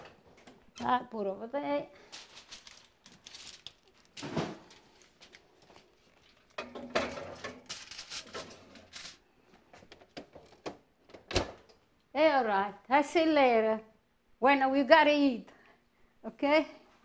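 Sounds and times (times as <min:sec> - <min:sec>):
dish clattering on wire rack: 0:06.6 - 0:07.7.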